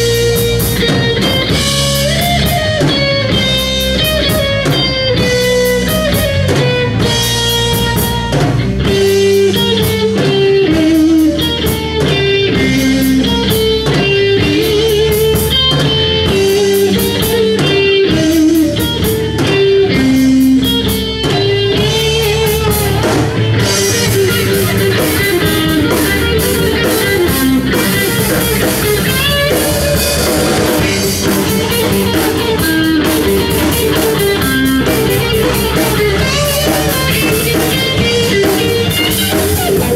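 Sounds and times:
bass: 0.0s - 39.9s
drum kit: 0.0s - 39.9s
electric guitar lead: 0.0s - 39.9s.

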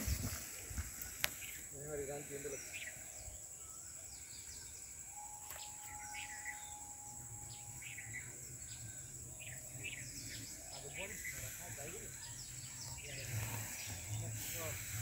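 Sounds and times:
high insect drone: 0.0s - 15.0s
bird chirps: 1.2s - 15.0s.

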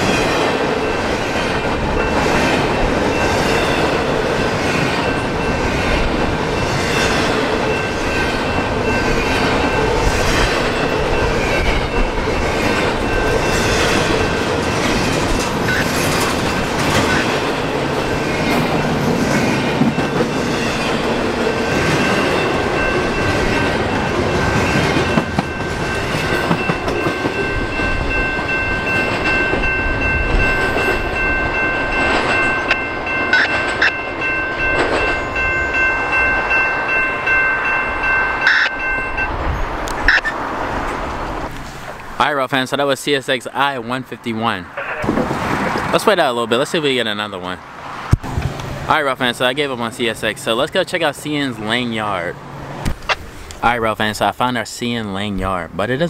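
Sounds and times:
freight train wheels clattering: 0.0s - 42.2s.

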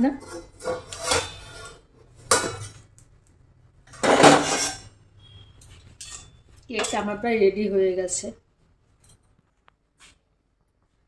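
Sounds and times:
metal lid scraping and clanking: 0.0s - 2.9s, 3.9s - 5.0s.

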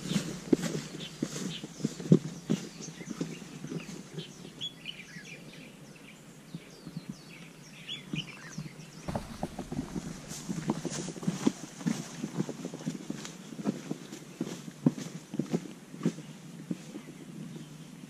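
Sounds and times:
footsteps on dirt trail: 9.1s - 11.5s.

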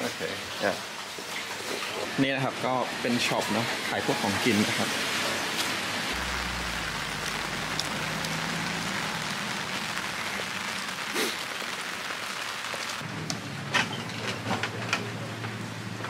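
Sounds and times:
rain falling: 0.0s - 16.0s.

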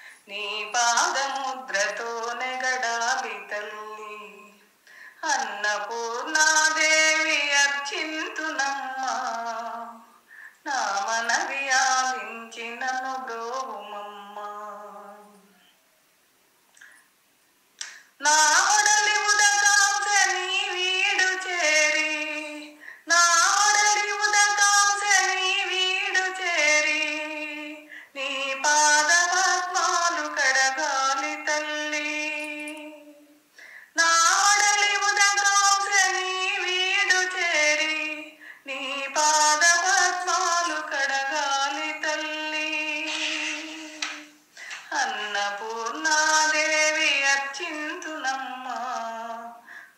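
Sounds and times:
woman singing unaccompanied: 0.0s - 15.7s, 17.8s - 49.9s.

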